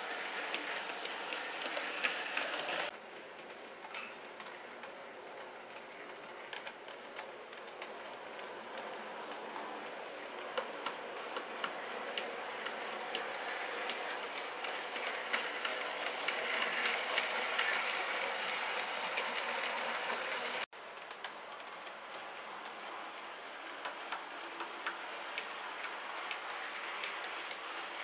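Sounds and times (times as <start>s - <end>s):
model train motor running: 0.0s - 2.9s, 7.6s - 20.7s
wheels clicking over rail joints: 0.0s - 28.0s.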